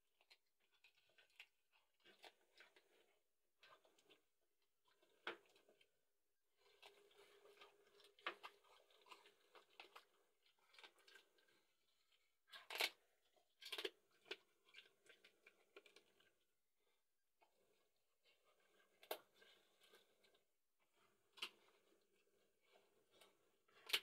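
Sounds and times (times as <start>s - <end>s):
dog chewing and crunching: 0.2s - 4.2s, 6.6s - 11.7s.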